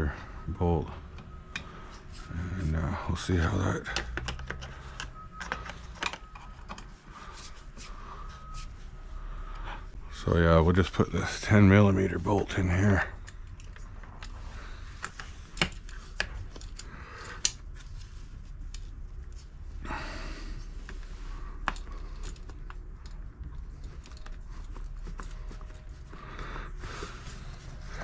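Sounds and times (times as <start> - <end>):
small metallic clicks and taps: 3.9 - 6.9.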